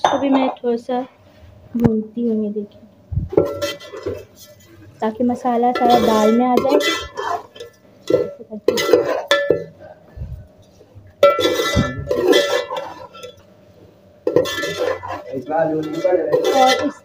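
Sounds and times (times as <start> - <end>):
metal spoon scraping a pot: 3.4 - 4.8, 5.6 - 9.7, 11.2 - 13.4, 14.2 - 17.0.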